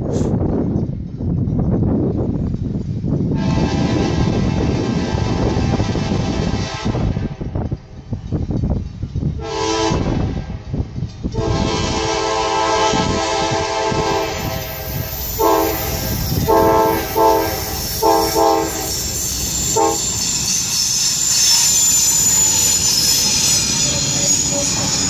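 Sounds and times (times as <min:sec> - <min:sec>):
train rumbling past: 0:00.0 - 0:25.0
locomotive air horn blasts: 0:03.4 - 0:07.5, 0:09.4 - 0:10.6, 0:11.4 - 0:20.3
wheel squeal: 0:14.4 - 0:25.0.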